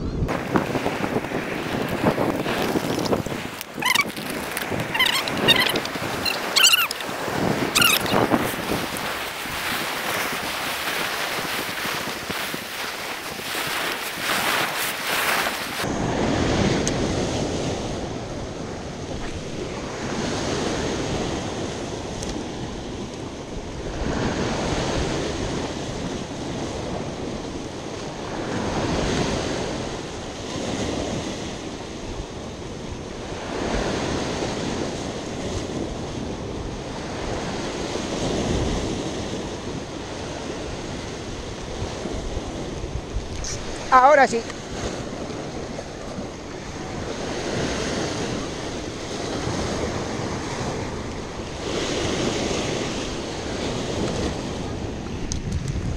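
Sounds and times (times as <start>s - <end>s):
wind buffeting microphone: 0.0s - 55.9s
waves breaking on rocky shore: 0.3s - 55.9s.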